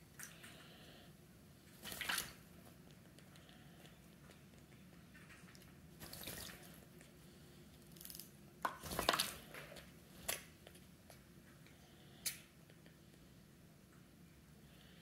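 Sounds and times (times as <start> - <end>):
parrot splashing in water: 1.8 - 2.4, 6.0 - 6.7.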